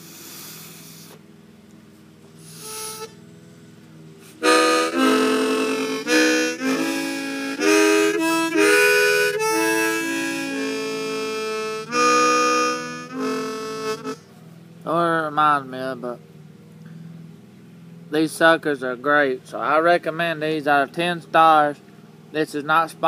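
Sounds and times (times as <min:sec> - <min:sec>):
harmonica playing: 0:02.4 - 0:03.2, 0:04.2 - 0:14.2.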